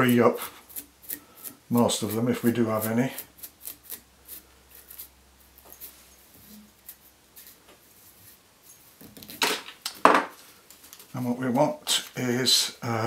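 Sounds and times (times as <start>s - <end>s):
brush scratching through hair: 0.0s - 9.4s.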